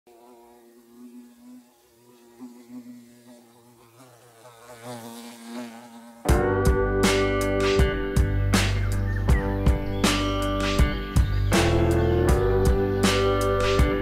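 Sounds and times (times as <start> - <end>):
bumblebee buzzing: 0.1 - 9.2, 9.8 - 14.0
loud guitar music: 6.3 - 14.0.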